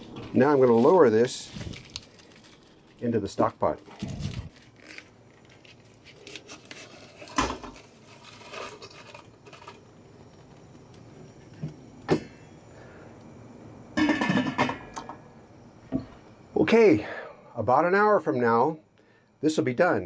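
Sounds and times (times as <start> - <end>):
pot lid clattering down: 14.0 - 15.1.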